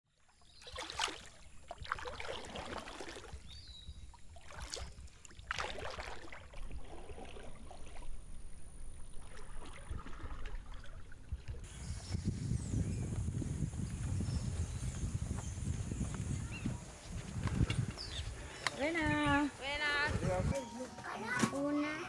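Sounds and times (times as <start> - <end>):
canoe paddle splashing water: 0.3 - 12.1.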